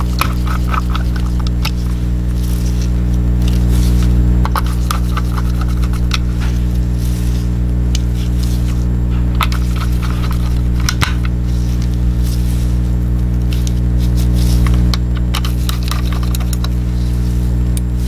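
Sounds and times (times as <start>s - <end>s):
loud steady low hum: 0.0s - 18.0s
screwdriver clicks and scraping: 4.4s - 6.3s, 14.5s - 16.8s.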